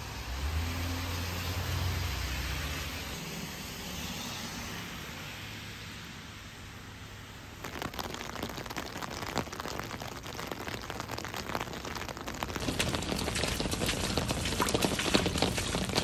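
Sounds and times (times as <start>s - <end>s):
heavy rain hiss: 7.2s - 16.0s
rain ticking on umbrella: 7.6s - 16.0s.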